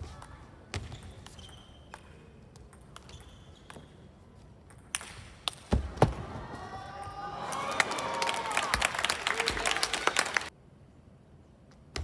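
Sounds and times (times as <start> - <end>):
shoe squeaks on floor: 0.8 - 2.0, 3.0 - 4.2.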